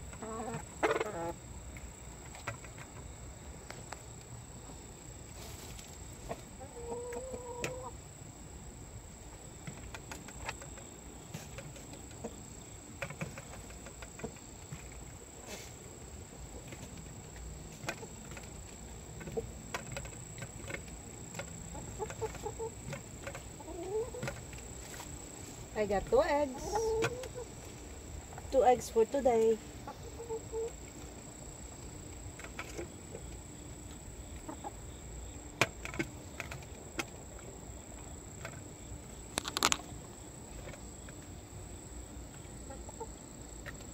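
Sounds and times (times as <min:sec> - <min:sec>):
hens clucking: 0:00.0 - 0:01.4, 0:05.4 - 0:08.0, 0:09.6 - 0:35.0, 0:42.3 - 0:43.9.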